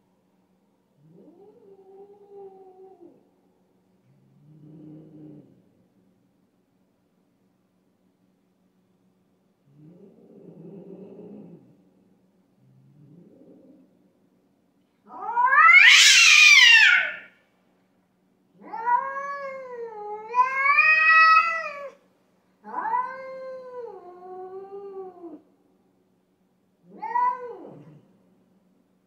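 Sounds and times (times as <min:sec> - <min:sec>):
cats yowling: 0:15.1 - 0:17.4, 0:18.6 - 0:22.0, 0:22.6 - 0:25.4, 0:26.9 - 0:28.0.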